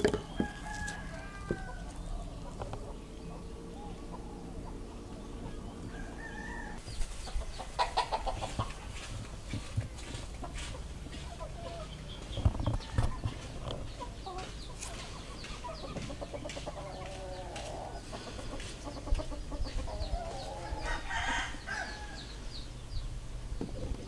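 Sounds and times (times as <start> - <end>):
chickens clucking: 0.0 - 24.0
small birds chirping: 0.0 - 24.0
rooster crowing: 0.2 - 2.3, 5.4 - 6.8, 20.4 - 22.3.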